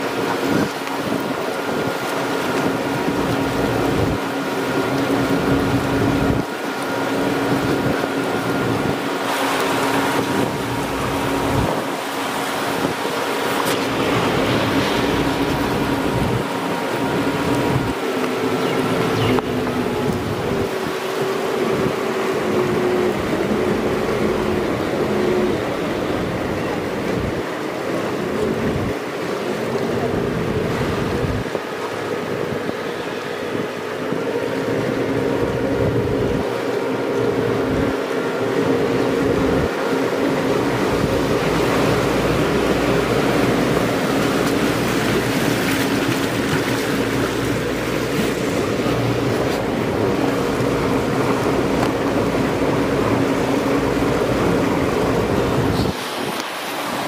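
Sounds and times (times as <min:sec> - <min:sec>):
motorboat engine running: 0:00.0 - 0:57.0
water rushing against hull: 0:00.0 - 0:57.0
wind on microphone: 0:00.0 - 0:57.0.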